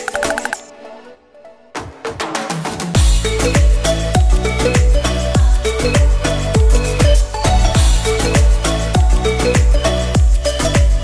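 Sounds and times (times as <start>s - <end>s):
repeating melodic notes: 0.0s - 1.0s
kick drum beat: 3.0s - 11.0s.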